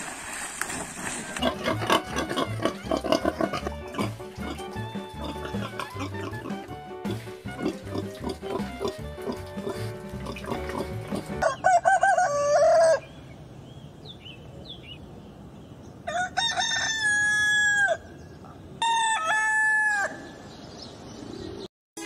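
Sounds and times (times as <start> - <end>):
rooster crowing: 11.4 - 13.1, 16.1 - 18.1, 18.8 - 20.3.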